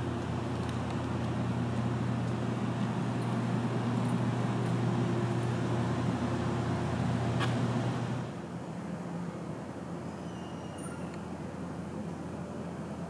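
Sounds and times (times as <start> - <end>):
vehicle engine hum: 0.0 - 10.0
broad rushing noise: 0.0 - 10.1.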